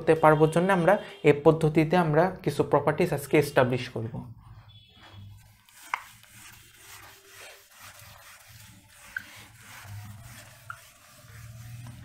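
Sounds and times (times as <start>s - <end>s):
eraser scrubbing whiteboard: 5.0s - 12.0s
eraser squeaks: 5.0s - 12.0s.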